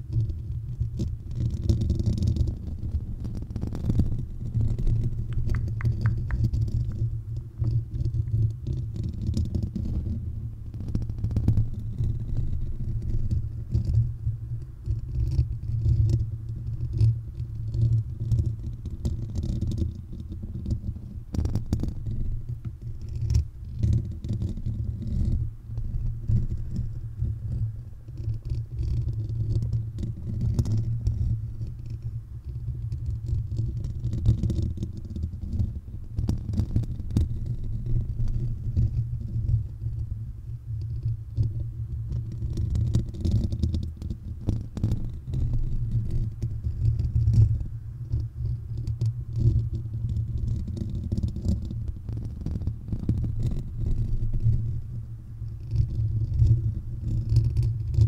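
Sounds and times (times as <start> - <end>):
fingers scratching microphone grille: 0.0 - 39.6.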